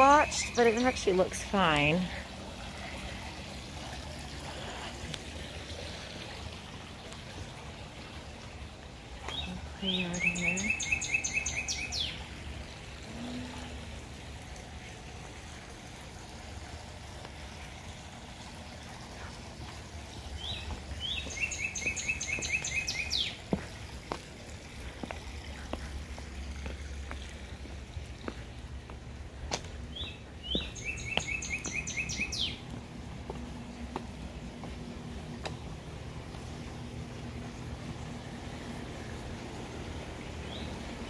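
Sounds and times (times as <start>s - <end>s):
songbird singing: 0.0s - 2.2s, 9.2s - 12.4s, 20.0s - 23.8s, 24.9s - 35.7s, 39.9s - 41.0s
steady outdoor hiss: 0.0s - 41.0s.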